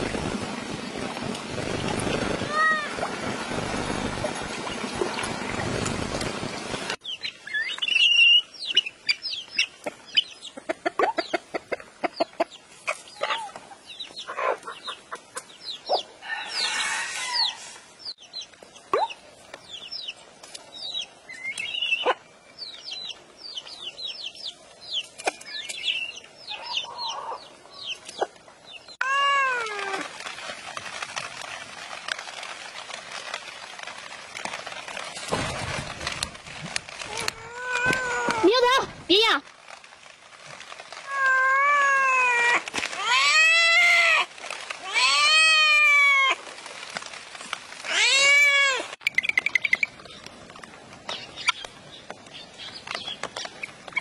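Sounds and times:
rain hissing: 0.0 - 11.3, 28.6 - 54.0
chicks and ducklings peeping: 8.6 - 16.1, 26.5 - 28.8
hens clucking: 9.8 - 13.6.

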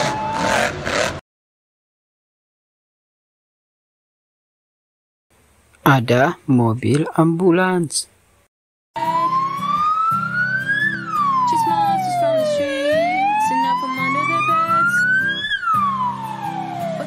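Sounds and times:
ambulance siren wailing: 0.0 - 1.1, 9.0 - 17.0.

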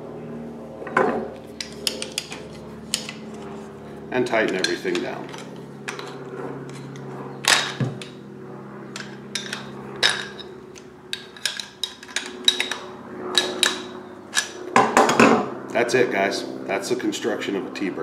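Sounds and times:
steady low hum: 0.0 - 18.0
tools clicking on metal fittings: 1.6 - 3.2, 4.2 - 8.1, 9.0 - 14.6.

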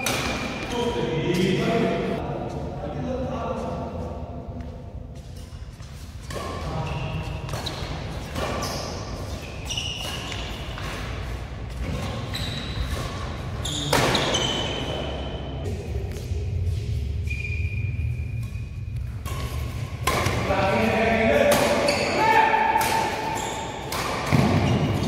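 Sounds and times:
rackets hitting shuttlecock: 0.0 - 0.8, 6.2 - 8.8, 18.4 - 25.0
shoes squeaking on court: 5.2 - 15.4, 21.7 - 22.3, 23.1 - 25.0.

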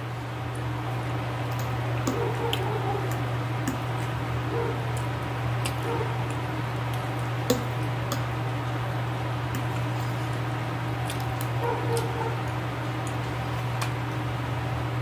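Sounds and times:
steady low hum: 0.0 - 15.0
wet chewing mouth sounds: 1.4 - 8.4, 9.5 - 14.0.

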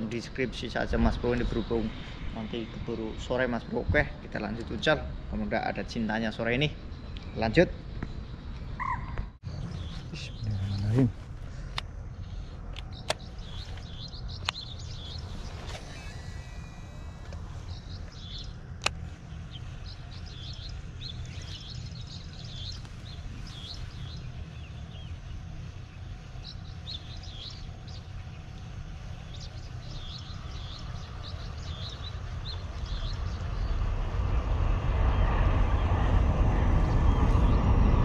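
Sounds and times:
small birds chirping: 0.0 - 38.0
steady low rumble: 0.0 - 38.0
sharp click: 12.7 - 14.7, 18.8 - 19.0.

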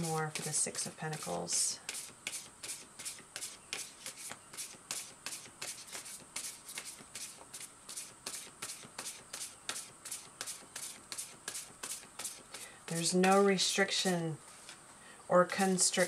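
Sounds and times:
cards being shuffled: 0.4 - 13.5.

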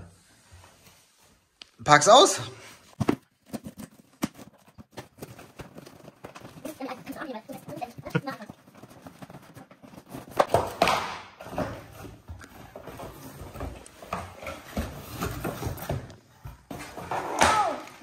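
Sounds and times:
cardboard packaging rustling: 2.8 - 10.8.

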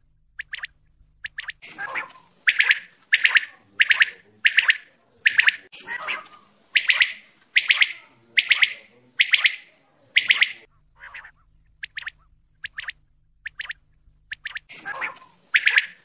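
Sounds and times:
low hum: 0.0 - 3.1, 10.6 - 15.6
quail song: 0.0 - 16.0.

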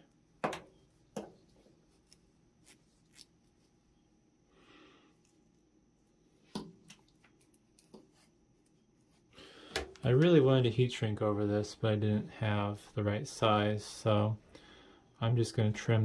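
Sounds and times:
soft rustle: 0.8 - 4.2, 5.2 - 9.3.

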